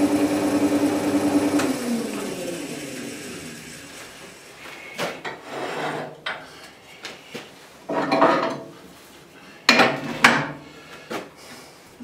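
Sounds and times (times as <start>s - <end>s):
metal clanks and scrapes: 5.2s - 6.5s, 7.9s - 8.7s.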